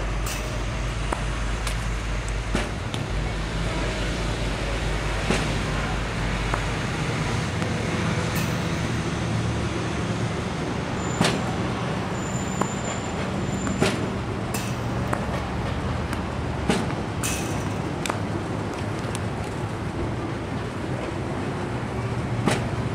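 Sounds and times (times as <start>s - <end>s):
racket hits: 13.7s - 15.4s, 16.1s - 18.2s
ball bounces: 15.0s - 15.4s.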